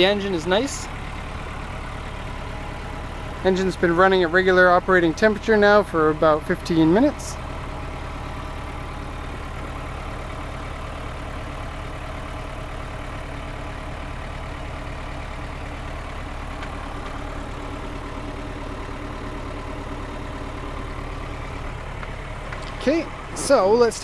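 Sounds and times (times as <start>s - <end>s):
diesel engine idling: 0.0s - 24.0s.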